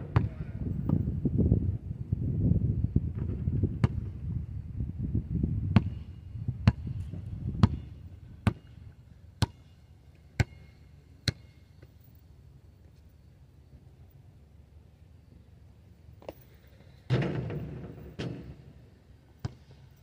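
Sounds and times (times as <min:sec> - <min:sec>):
basketball bouncing on asphalt: 0:03.1 - 0:04.3, 0:05.6 - 0:08.8, 0:09.4 - 0:09.7, 0:10.4 - 0:11.6, 0:19.3 - 0:19.9.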